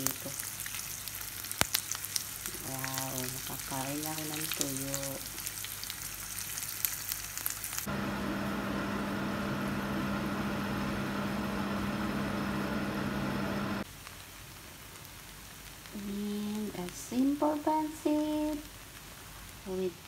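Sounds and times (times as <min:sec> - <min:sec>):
fish sizzling in oil: 0:00.0 - 0:07.9, 0:13.8 - 0:20.0
low hum with whirring hiss: 0:07.8 - 0:14.0.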